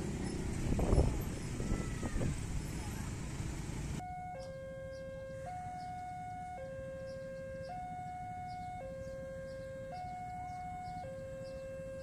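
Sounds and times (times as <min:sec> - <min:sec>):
two-tone crossing alarm: 0:04.0 - 0:12.0.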